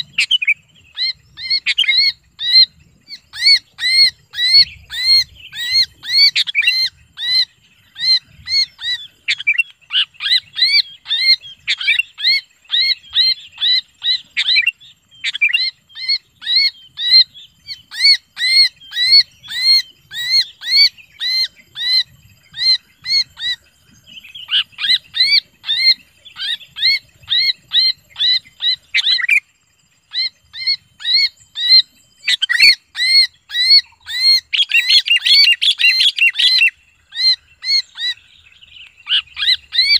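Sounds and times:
bird distress screams: 30.1 - 38.2, 39.0 - 39.9.

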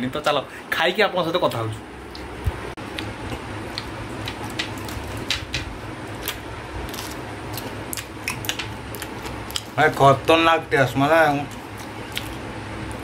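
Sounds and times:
steady low hum: 0.0 - 13.0
crunchy chewing: 6.1 - 10.3, 11.4 - 13.0.

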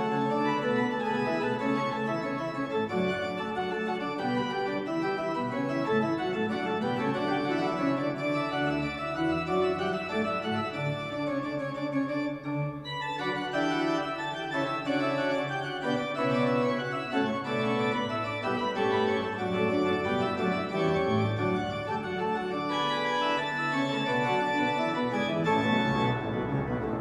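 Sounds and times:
pipe organ chords: 0.0 - 27.0.

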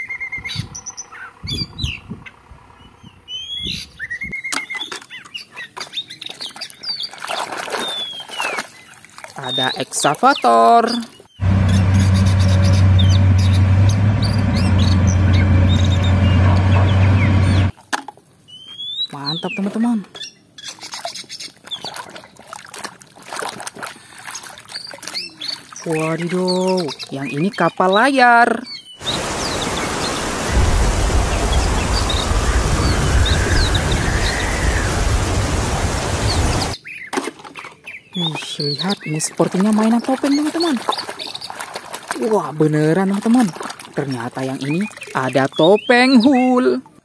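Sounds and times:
birds chirping: 0.0 - 17.7, 24.7 - 41.6, 44.0 - 46.8
excavator diesel engine: 11.4 - 17.7, 29.0 - 36.8
low rumble: 11.4 - 17.7, 29.0 - 36.8
rain and wind hiss: 29.0 - 36.8.

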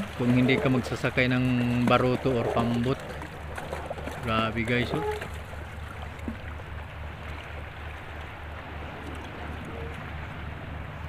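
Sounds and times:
boat engine throbbing: 0.0 - 11.0
hiss of wind and water: 0.0 - 11.0.

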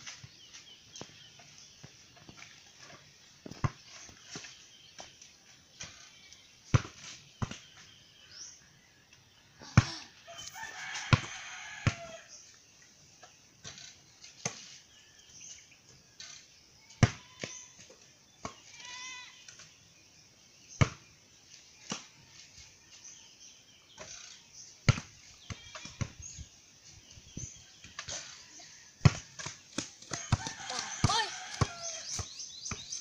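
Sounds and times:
basketball bouncing: 29.0 - 33.0.

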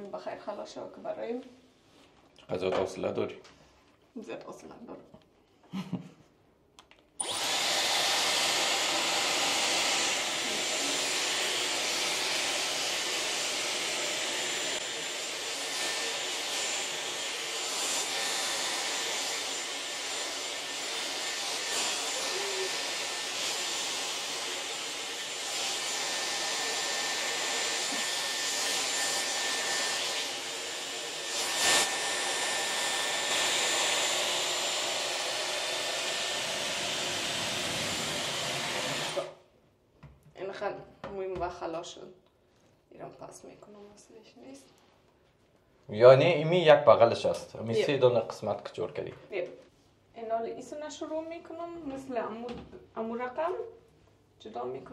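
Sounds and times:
hair dryer blowing with whine: 7.2 - 39.4.

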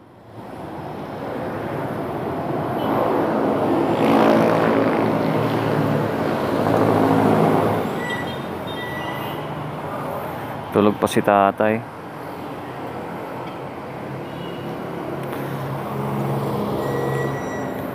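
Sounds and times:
vehicle passing by: 1.5 - 8.0, 15.0 - 17.8.

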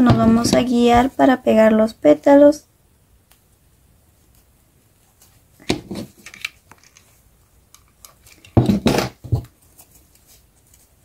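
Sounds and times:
small objects knocking on table: 8.5 - 9.5.

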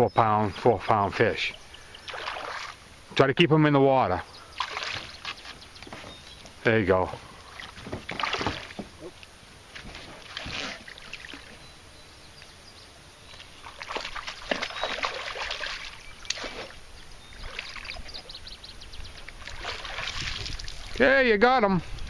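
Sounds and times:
fish splashing at water surface: 2.0 - 2.8, 4.6 - 5.5, 7.4 - 8.8, 13.6 - 16.8, 19.3 - 21.0.

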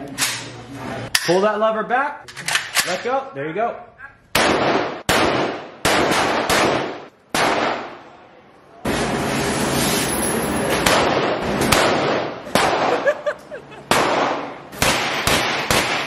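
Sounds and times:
gunshots echoing indoors: 4.3 - 8.2, 10.7 - 16.0.

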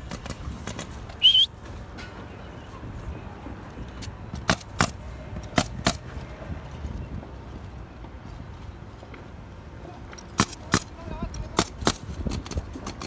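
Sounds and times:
nail guns snapping: 4.0 - 6.0, 10.2 - 13.0.

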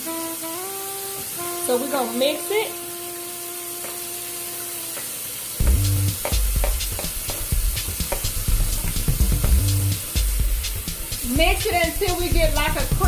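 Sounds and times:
low thumps: 5.6 - 13.0.

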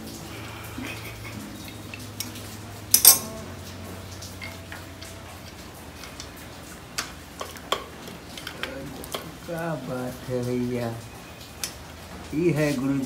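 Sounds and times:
pliers clanking on metal: 2.2 - 3.4.

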